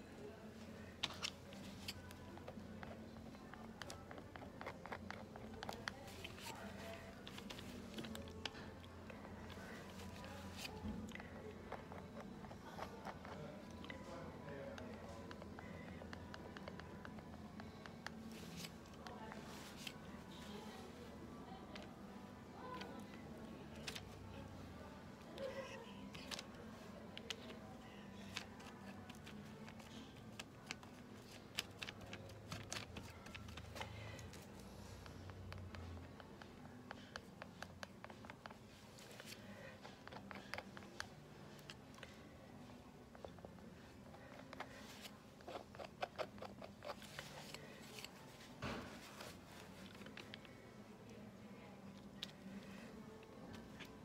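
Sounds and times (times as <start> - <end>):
palette knife scraping paint: 44.4 - 48.4.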